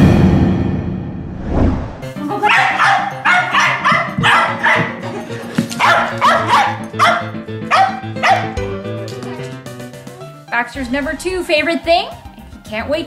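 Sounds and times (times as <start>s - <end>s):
background music: 1.7s - 13.0s
dog barking sharply: 2.5s - 4.9s, 5.8s - 8.6s.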